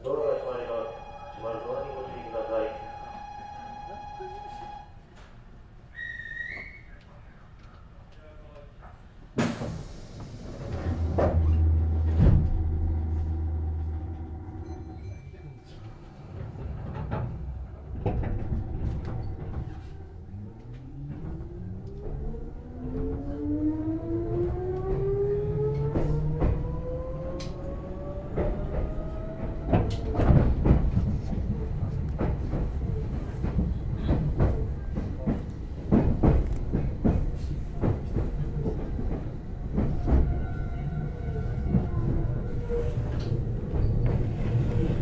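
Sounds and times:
train running rumble: 0:09.4 - 0:45.0
electric train motor whine: 0:11.4 - 0:15.0.

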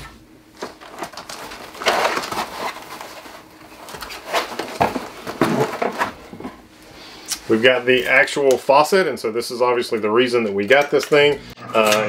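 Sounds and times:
packing material rustling: 0:00.5 - 0:06.6.

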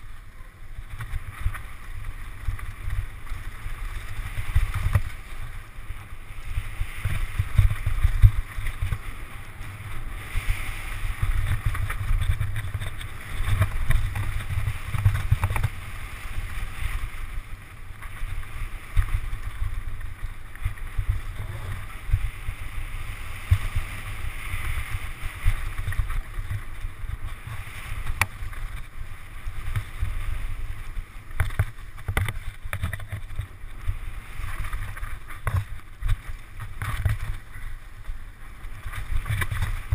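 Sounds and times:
wind buffeting microphone: 0:00.7 - 0:39.9
bike knocking and rattling: 0:11.0 - 0:15.9, 0:31.3 - 0:38.1.

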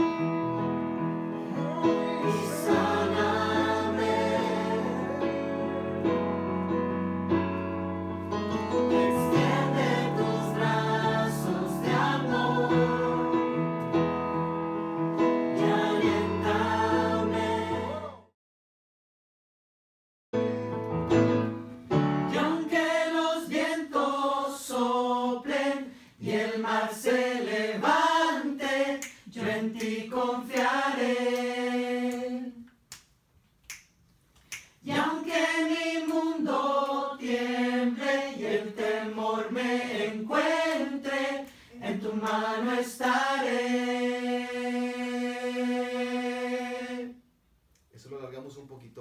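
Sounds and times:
group of voices singing: 0:01.3 - 0:06.3, 0:08.7 - 0:13.7, 0:15.5 - 0:18.3, 0:22.3 - 0:32.7, 0:34.8 - 0:47.2.

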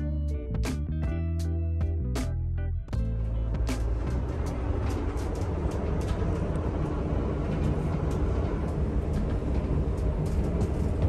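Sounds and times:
ferry engine rumble: 0:02.8 - 0:11.0.

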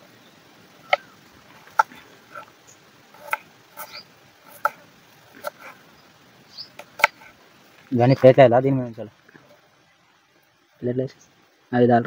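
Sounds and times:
knife striking wooden cutting board: 0:03.2 - 0:04.8, 0:06.8 - 0:07.3.

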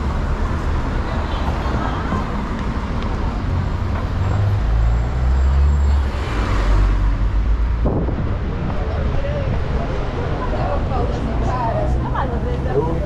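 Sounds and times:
road traffic passing: 0:00.0 - 0:13.0
vehicle engine rumble: 0:00.0 - 0:13.0.

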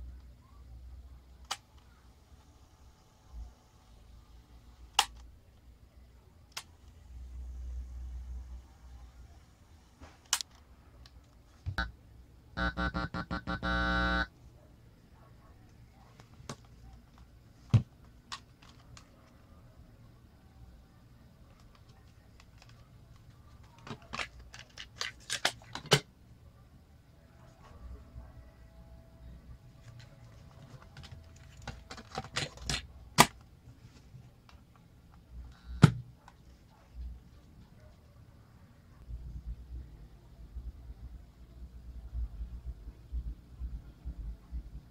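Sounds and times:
electrical buzz from speakers: 0:11.7 - 0:14.3
cassette plastic clicks and rattles: 0:29.8 - 0:33.4.

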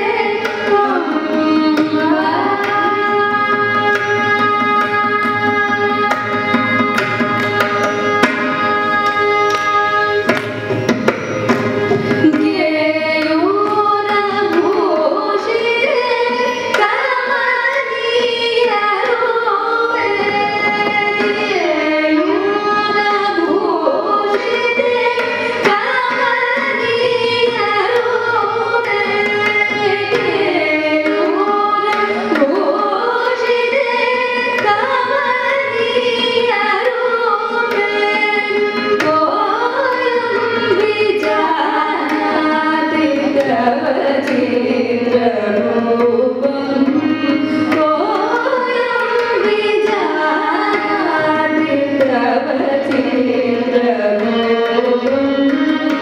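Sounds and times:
women singing: 0:00.0 - 0:03.8, 0:12.2 - 0:56.0
violin: 0:00.0 - 0:56.0.

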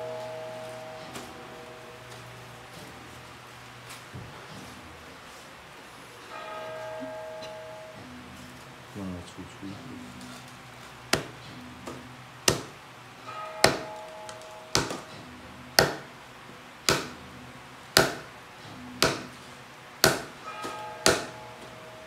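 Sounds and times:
small hammer tapping: 0:11.1 - 0:12.8, 0:13.6 - 0:15.2, 0:15.8 - 0:16.1, 0:16.9 - 0:17.2, 0:18.0 - 0:18.3, 0:19.0 - 0:19.4, 0:20.0 - 0:21.4.

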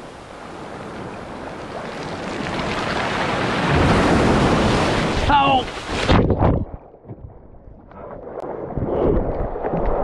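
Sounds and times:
sea wave breaking: 0:00.0 - 0:06.2.

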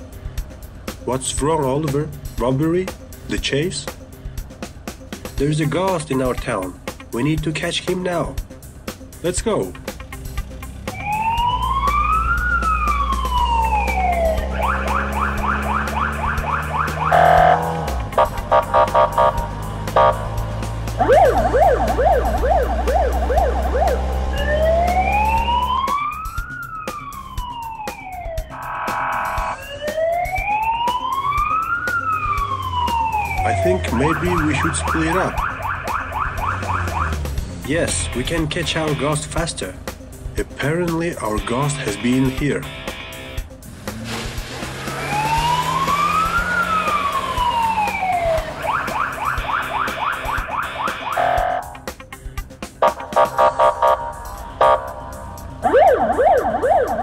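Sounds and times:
police siren yelp and wail: 0:10.9 - 0:39.4, 0:44.9 - 0:51.9, 0:52.8 - 0:57.0.

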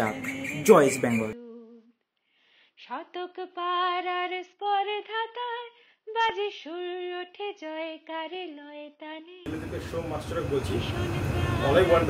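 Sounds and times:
person singing unaccompanied: 0:00.0 - 0:01.9, 0:10.7 - 0:12.0.

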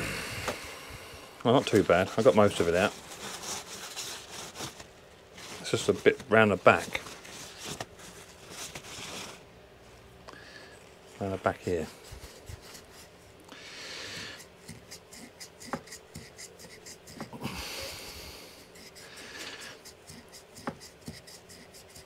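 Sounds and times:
wire wool scrubbing metal: 0:14.3 - 0:17.4, 0:18.6 - 0:22.0.

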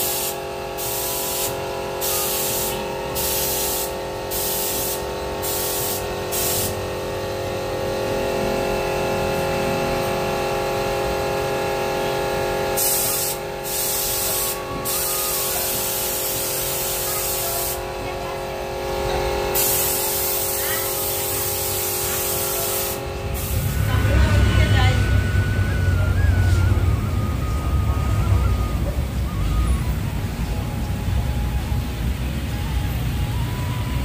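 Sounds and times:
paint spray gun hissing: 0:00.0 - 0:06.9, 0:12.8 - 0:18.0, 0:19.5 - 0:24.3
steady hum: 0:00.0 - 0:34.0.

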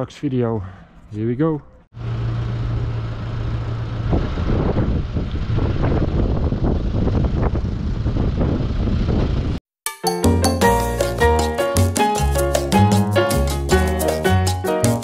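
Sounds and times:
tractor diesel engine: 0:02.0 - 0:09.6.

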